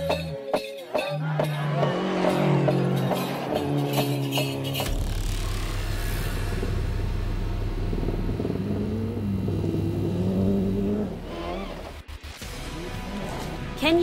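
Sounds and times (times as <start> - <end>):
rally car engine revving: 1.2 - 13.4.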